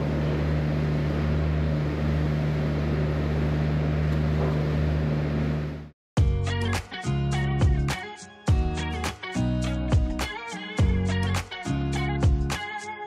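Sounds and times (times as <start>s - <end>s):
low mechanical hum of machinery: 0.0s - 5.9s.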